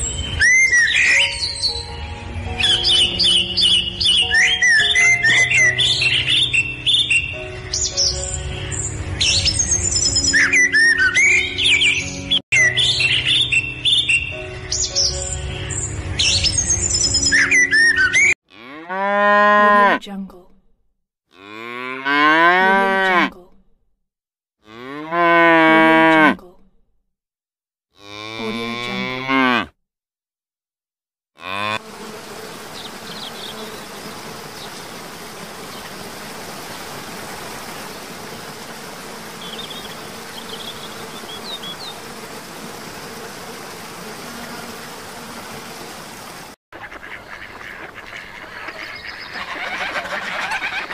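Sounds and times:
cattle mooing: 18.5 - 20.0, 21.3 - 23.4, 24.6 - 26.4, 28.0 - 29.7, 31.4 - 31.8.

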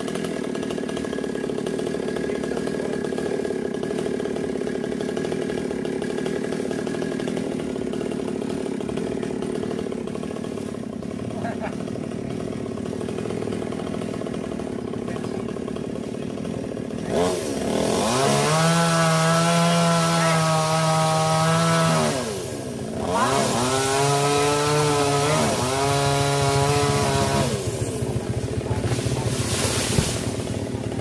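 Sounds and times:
chainsaw idling and revving: 0.0 - 31.0.

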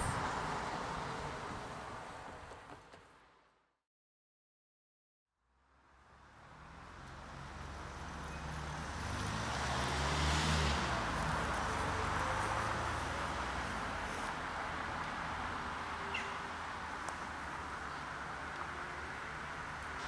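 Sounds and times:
vehicle engine humming: 6.4 - 20.0.

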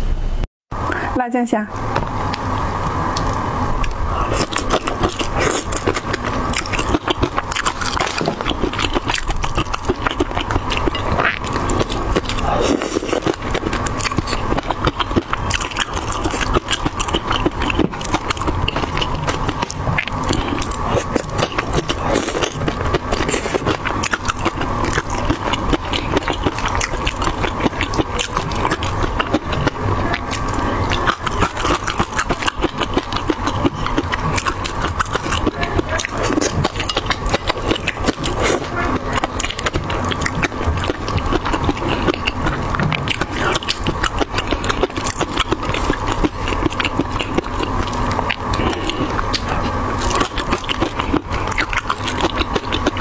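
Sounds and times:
wet chewing and lip smacking: 2.3 - 53.0.

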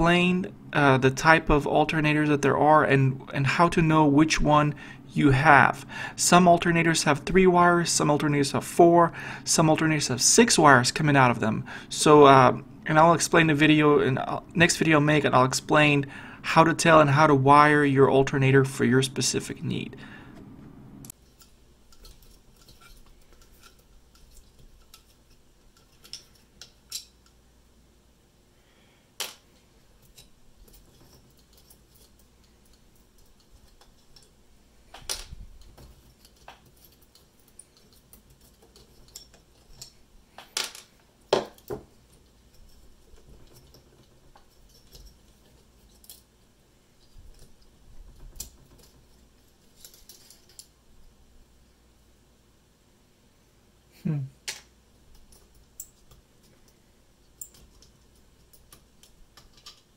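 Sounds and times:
hands clicking plastic and metal parts: 21.4 - 27.4, 30.0 - 34.4, 35.0 - 46.2, 47.0 - 50.7, 54.4 - 59.9.

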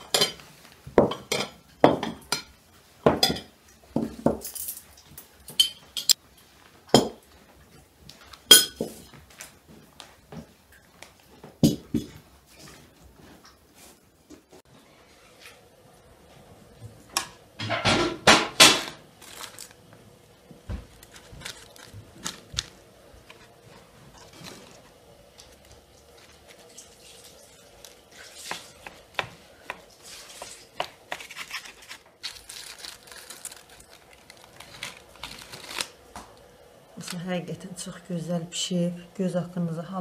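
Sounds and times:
parchment and foil crinkling: 18.6 - 37.4.

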